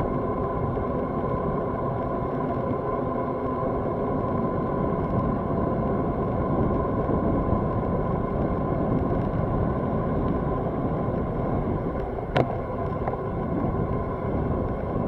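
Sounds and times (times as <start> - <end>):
bicycle tyre noise: 0.1 - 15.0
wind rushing over microphone: 3.8 - 15.0.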